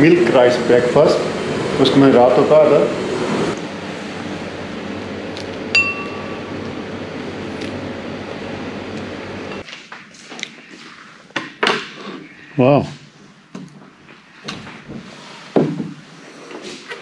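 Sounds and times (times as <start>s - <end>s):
dishware clinking with ringing tone: 5.8s - 6.5s.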